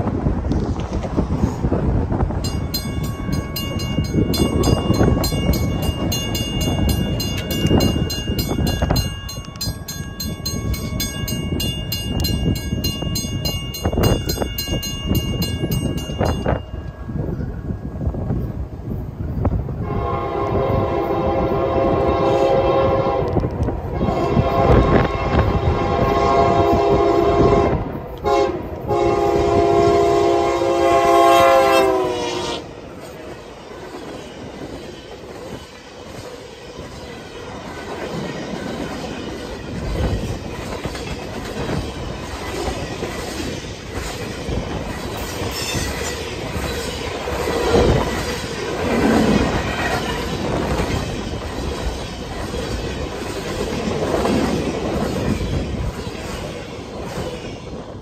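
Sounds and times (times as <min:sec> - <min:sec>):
locomotive air horn chord: 0:19.8 - 0:32.7.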